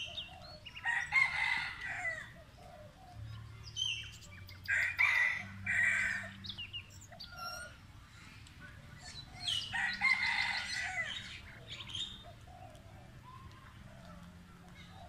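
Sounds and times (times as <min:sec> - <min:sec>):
long bird calls: 0:00.0 - 0:08.4.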